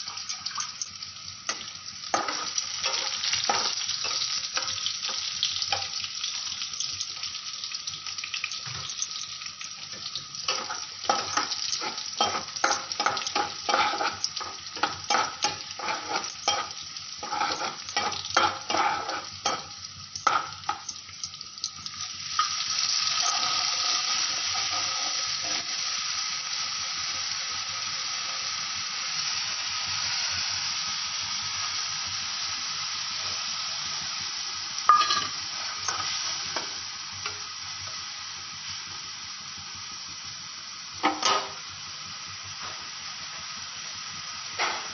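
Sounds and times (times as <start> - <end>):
onions sizzling in oil: 0.0 - 44.9
paste sizzling in hot oil: 0.0 - 44.9
metal spatula scraping pan: 10.5 - 20.8.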